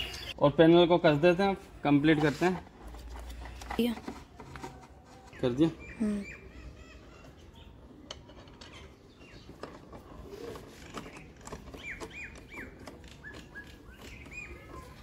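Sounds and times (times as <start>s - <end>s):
bird chirping: 0.0s - 0.4s, 5.3s - 9.8s, 10.4s - 15.0s.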